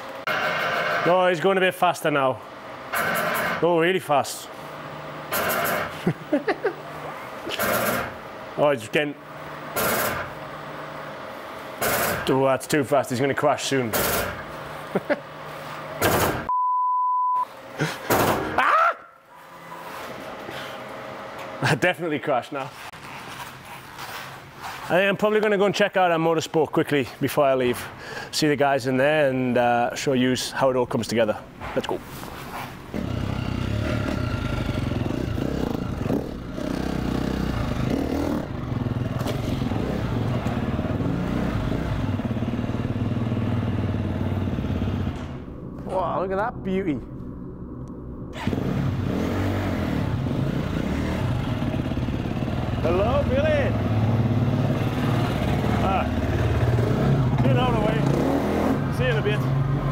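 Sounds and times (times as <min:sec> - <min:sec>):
censor bleep: 0:16.5 - 0:17.5
dirt bike engine running: 0:32.9 - 0:45.6, 0:48.4 - 0:59.9.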